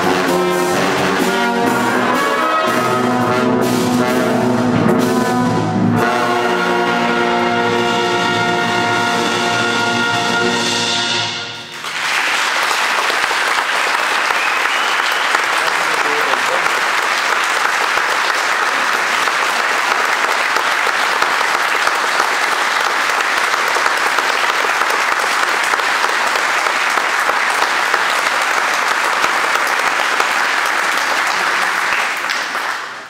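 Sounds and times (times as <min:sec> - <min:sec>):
audience applauding: 0:11.7 - 0:33.0.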